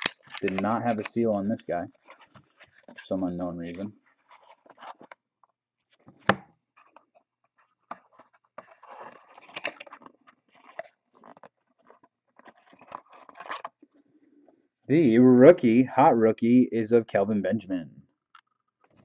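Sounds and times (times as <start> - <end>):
cardboard and cards rustling: 0.0 - 14.6, 18.4 - 19.0.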